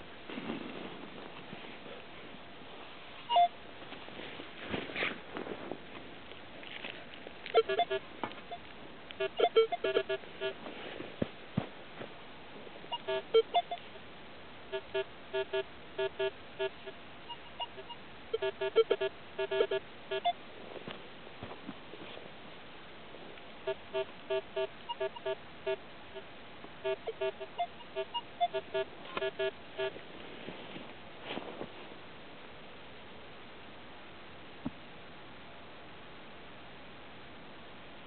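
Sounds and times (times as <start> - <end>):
metal detector beeps: 3.3 - 3.5, 7.5 - 8.6, 9.2 - 10.6, 12.9 - 13.8, 14.8 - 20.4, 23.7 - 25.8, 26.9 - 29.9.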